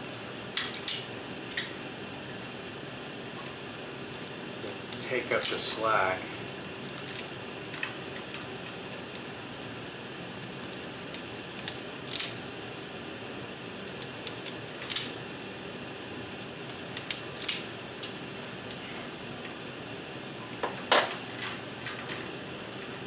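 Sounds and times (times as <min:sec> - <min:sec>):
air handling unit hum: 0:00.0 - 0:23.0
wire strippers clicking: 0:10.4 - 0:12.4, 0:13.8 - 0:15.2, 0:16.6 - 0:18.8.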